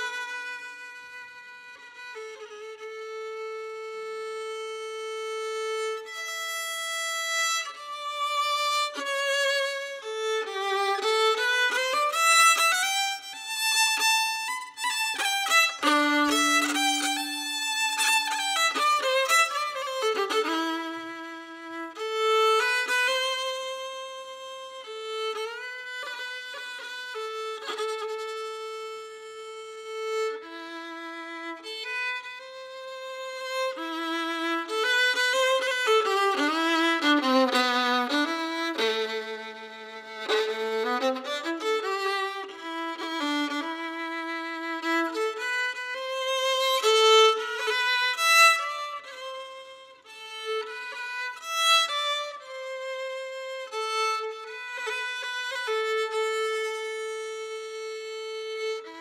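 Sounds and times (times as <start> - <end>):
solo fiddle tune: 0.0 - 59.0.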